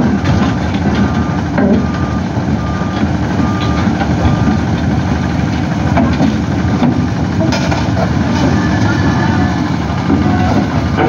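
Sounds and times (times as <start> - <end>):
diesel engine running: 0.0 - 11.0
excavator travel alarm beeping: 0.8 - 5.8, 8.2 - 11.0.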